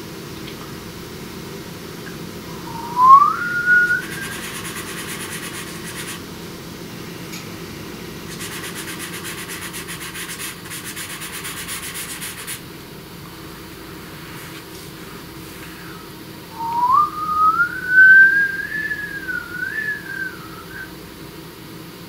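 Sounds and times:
short rising whistle: 2.5s - 4.8s, 16.6s - 20.9s
pencil scratching: 4.1s - 6.2s, 8.3s - 12.6s.

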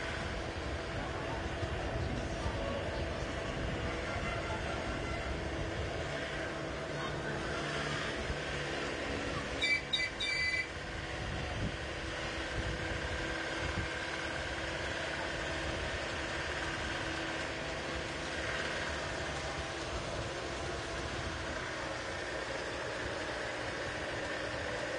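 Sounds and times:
road train engine droning: 0.0s - 24.9s
short high beeps: 9.6s - 10.7s.

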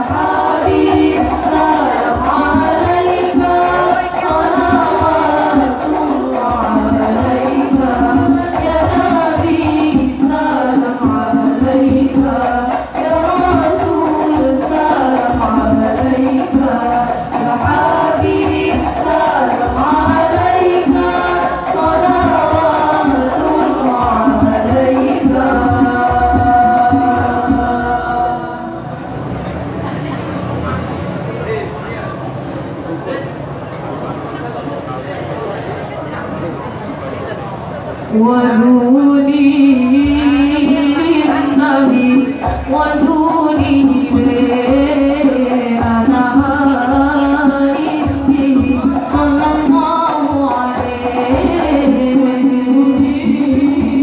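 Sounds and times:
frame drums: 0.0s - 28.4s, 40.0s - 54.0s
women singing together: 0.0s - 29.4s, 38.1s - 54.0s.

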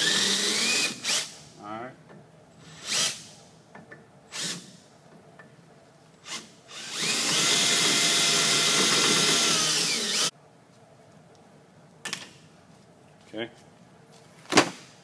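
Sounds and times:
cordless drill drilling: 0.0s - 1.4s, 6.2s - 10.3s.

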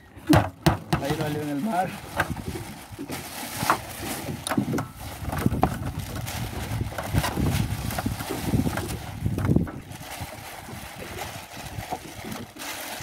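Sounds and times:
charcoal clattering in metal grill: 0.3s - 1.6s.

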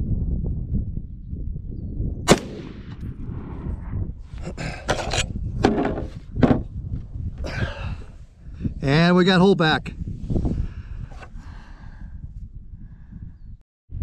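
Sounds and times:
rifle shot: 2.3s - 3.8s.

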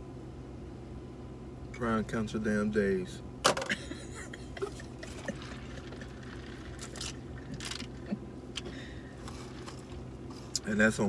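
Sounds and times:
low hum inside a car: 0.0s - 11.0s
slurping through a straw: 5.0s - 8.1s, 9.2s - 10.6s.

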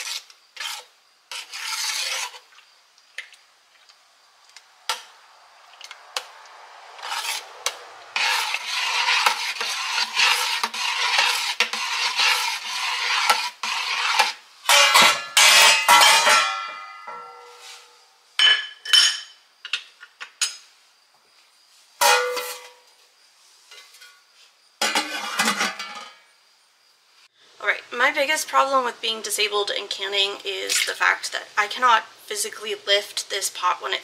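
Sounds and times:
kitchenware rattling and clattering: 24.8s - 26.2s.

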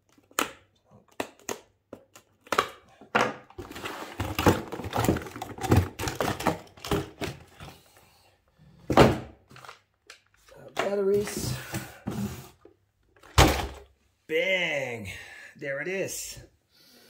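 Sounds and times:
cardboard and plastic packaging rustling: 1.0s - 7.9s, 9.0s - 13.9s.

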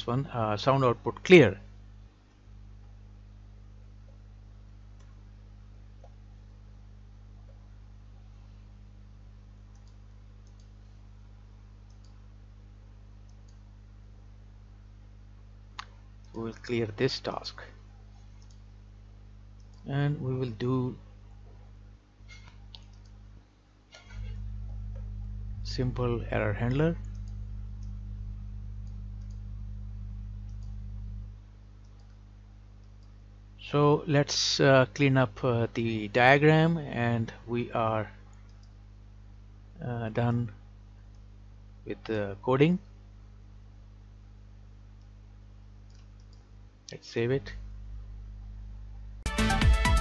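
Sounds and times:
low electrical hum: 0.0s - 49.3s
computer mouse clicks: 9.7s - 10.8s, 11.8s - 12.2s, 13.2s - 13.7s, 18.4s - 18.6s, 19.6s - 19.9s, 22.3s - 23.2s, 26.7s - 28.0s, 28.8s - 29.4s, 30.4s - 30.8s, 31.8s - 32.2s, 32.8s - 33.2s, 38.4s - 38.8s, 45.8s - 47.0s.

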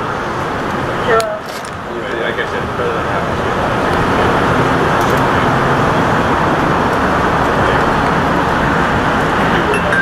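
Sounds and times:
street traffic rumble: 0.0s - 10.0s.

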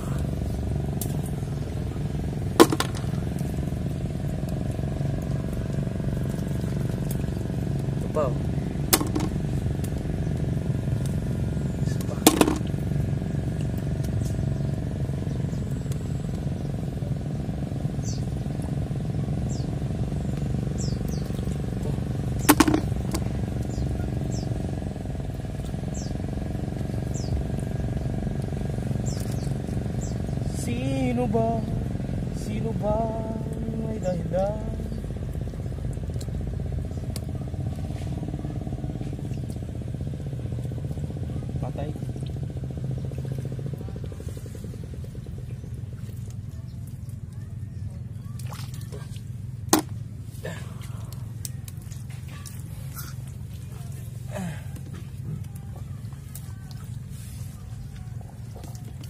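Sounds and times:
low engine hum: 0.0s - 59.0s
low motor drone: 0.0s - 59.0s
bird chirping: 19.4s - 21.4s.

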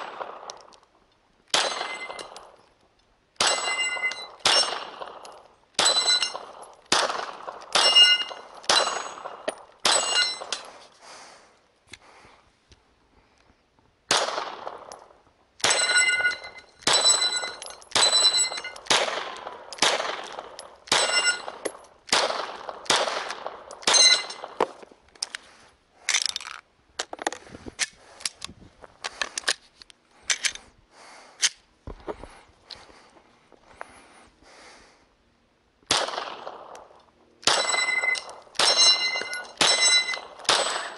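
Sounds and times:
pistol shots: 0.0s - 0.8s, 1.5s - 2.6s, 3.4s - 10.6s, 14.1s - 15.0s, 15.6s - 24.6s, 35.9s - 40.9s
steel plates clanging: 5.8s - 6.5s, 7.8s - 10.7s, 15.7s - 18.9s, 20.9s - 21.7s, 23.8s - 24.5s, 37.5s - 40.9s.

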